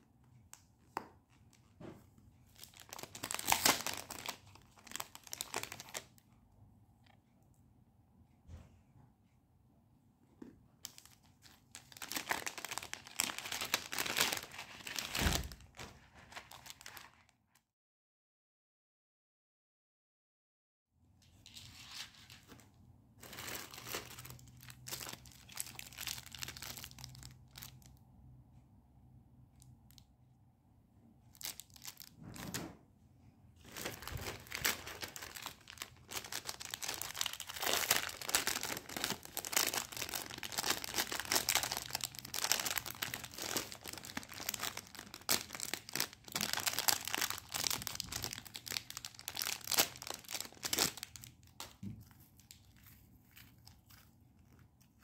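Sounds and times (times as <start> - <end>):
packaging crinkling and rustling: 2.5 - 6.2, 10.8 - 17.3, 23.2 - 28.0, 31.4 - 32.5, 33.6 - 55.0.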